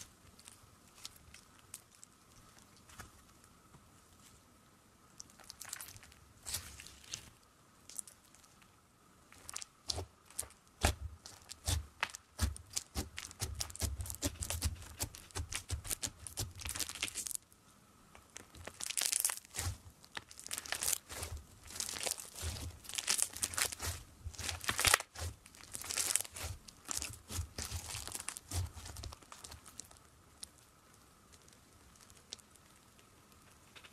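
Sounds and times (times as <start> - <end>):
slime crackling and popping: 5.2 - 7.3, 9.3 - 17.4, 18.2 - 33.4.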